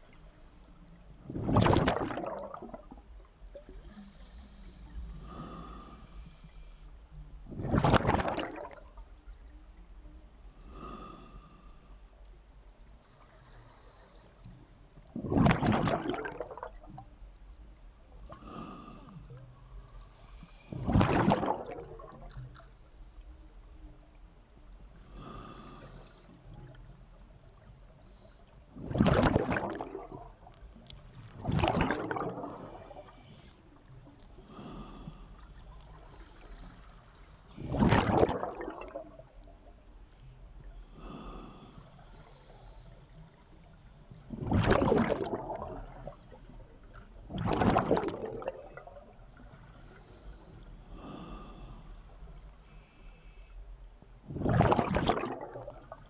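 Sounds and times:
underwater exhaled air bubbling: 0:01.2 - 0:06.7, 0:07.4 - 0:09.2, 0:15.0 - 0:17.1, 0:18.3 - 0:22.8, 0:28.1 - 0:39.8, 0:40.6 - 0:53.0, 0:54.2 - 0:56.0.

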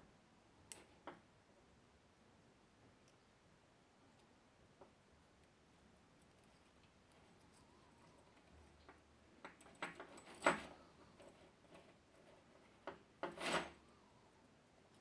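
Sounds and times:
metal hose clinking and rattling: 0:08.3 - 0:13.8.

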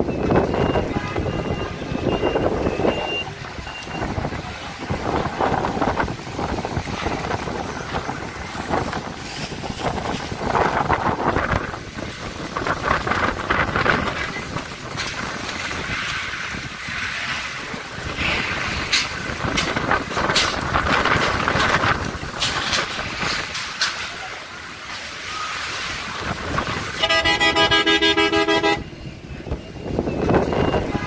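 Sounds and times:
wind gusting on microphone: 0:00.0 - 0:31.0
car horn: 0:27.0 - 0:29.0.

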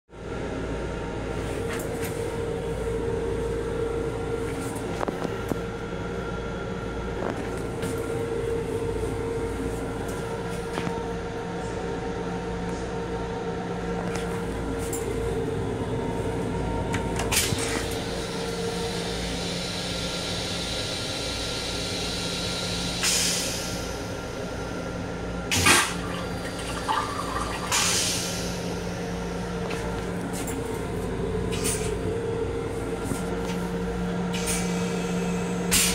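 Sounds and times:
railcar hum and rumble: 0:00.1 - 0:35.9
toilet flushing: 0:25.5 - 0:29.0.

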